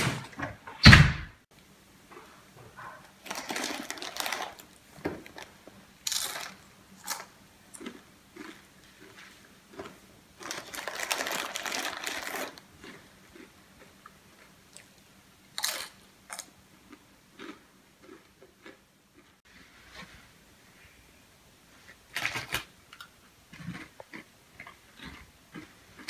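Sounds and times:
hand rummaging in chip bag: 3.2s - 7.2s, 10.4s - 12.6s
chewing crunches: 3.2s - 15.0s, 15.6s - 19.3s, 23.0s - 26.0s
chip crunch bite: 6.0s - 13.5s, 15.6s - 18.8s.

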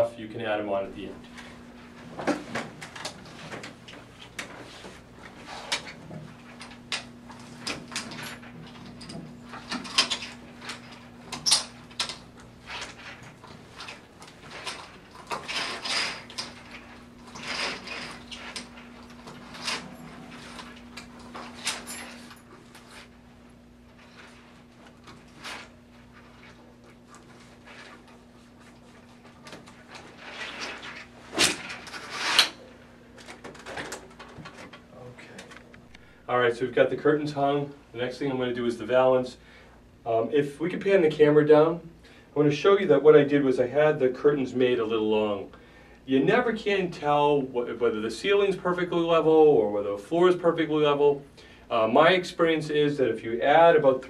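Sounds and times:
curtain hooks and chains clinking: 5.6s - 23.1s.

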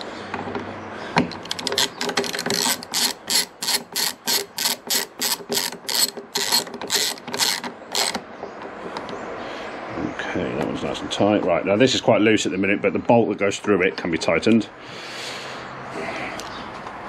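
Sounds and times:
hand ratchet clicking: 1.3s - 8.2s.

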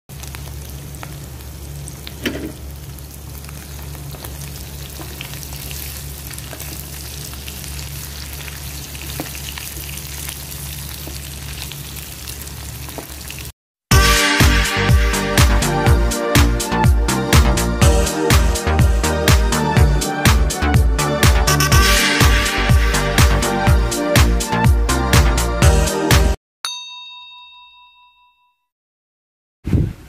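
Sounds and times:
fish frying in oil: 0.1s - 13.5s.

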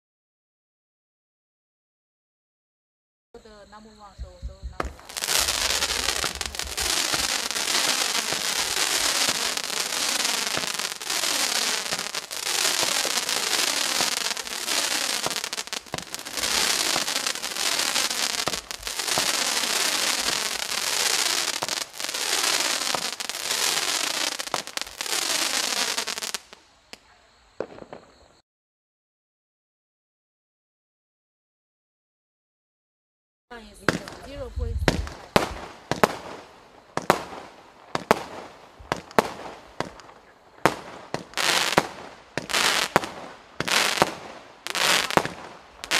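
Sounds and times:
fireworks barrage firing: 4.5s - 27.0s, 27.6s - 28.4s, 33.8s - 45.9s
hissing and crackling: 4.8s - 28.2s, 33.8s - 45.9s.

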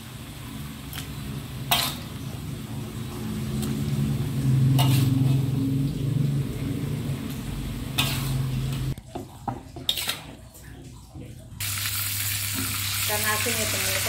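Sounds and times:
low droning hum: 1.4s - 9.0s.

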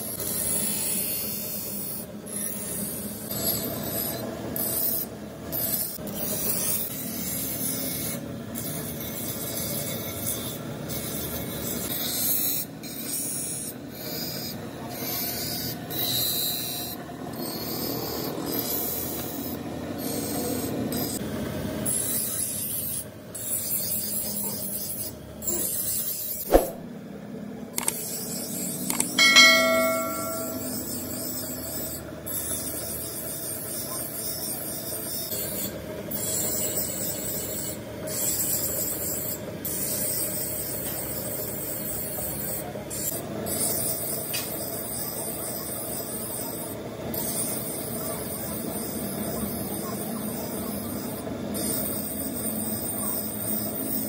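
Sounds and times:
knife blade grinding on stone wheel: 0.1s - 21.2s, 27.8s - 33.3s, 49.6s - 54.0s
sharp knock: 26.5s - 26.8s
ringing metal clink: 28.9s - 31.3s.

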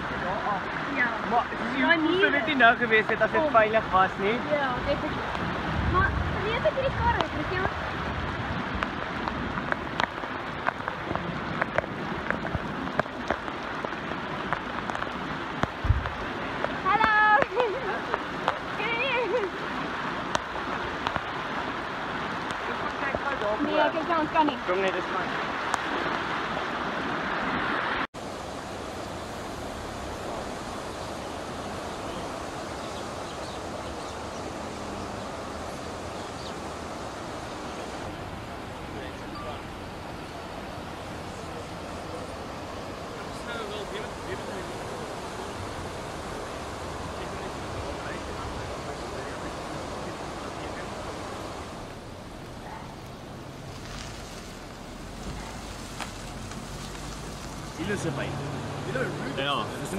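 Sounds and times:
heavy rain: 0.0s - 59.9s
rushing flood water: 0.0s - 59.9s
dull thump: 15.8s - 16.2s.

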